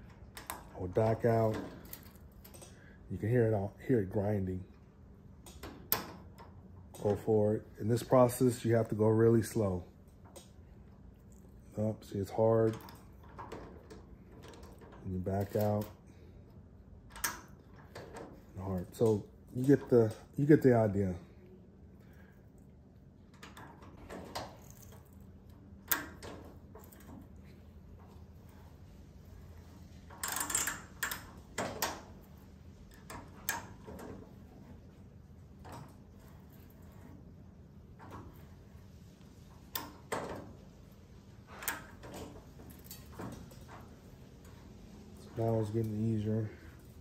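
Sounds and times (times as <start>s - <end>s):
tap wrench creaking and clicking: 30.1s - 32.0s.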